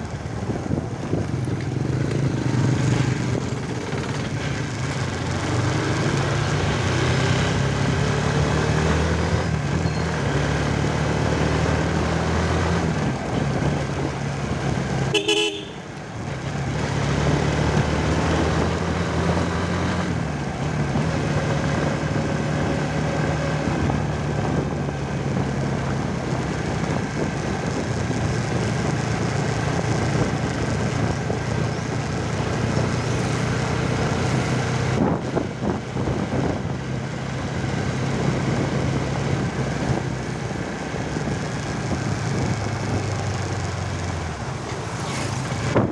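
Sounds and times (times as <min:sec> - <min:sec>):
motorcycle engine running: 0:00.0 - 0:08.1, 0:13.0 - 0:17.8, 0:23.6 - 0:45.9
short horn toot: 0:15.1 - 0:15.8.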